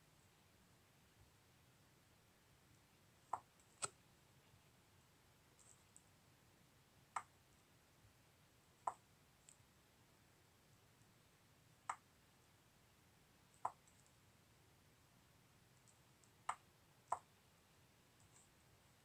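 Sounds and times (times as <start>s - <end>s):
computer mouse clicks: 3.3s - 4.0s.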